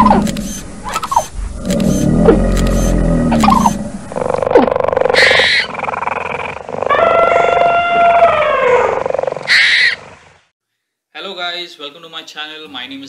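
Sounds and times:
buzzy pulsing animal call: 0:00.0 - 0:10.1
long drawn-out animal call: 0:01.8 - 0:10.2.

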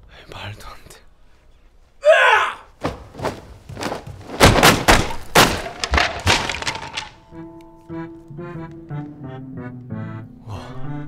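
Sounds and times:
martial arts shout: 0:02.0 - 0:02.8
wooden boards cracking from kicks: 0:02.8 - 0:07.3.

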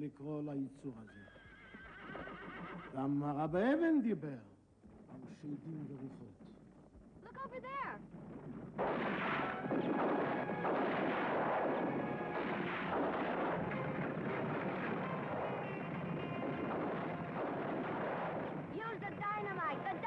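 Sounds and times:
horseback chase din: 0:04.8 - 0:20.0
gunfire: 0:08.7 - 0:20.0.

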